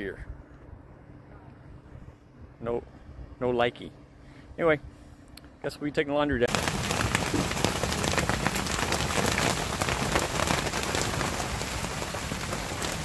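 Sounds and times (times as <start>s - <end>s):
heavy rain on boat deck: 6.5s - 13.0s.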